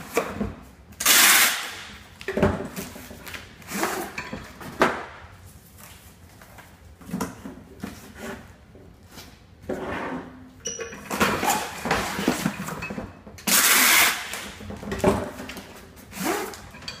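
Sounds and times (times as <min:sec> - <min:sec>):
packing tape rasp from tape gun: 0:01.0 - 0:01.9, 0:13.4 - 0:14.6, 0:16.0 - 0:16.7.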